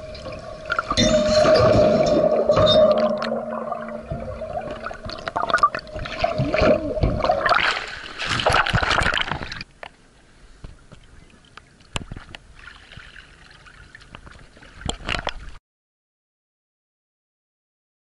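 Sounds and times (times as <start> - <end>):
water churning underwater: 0.0 - 9.8
water lapping: 10.8 - 15.6.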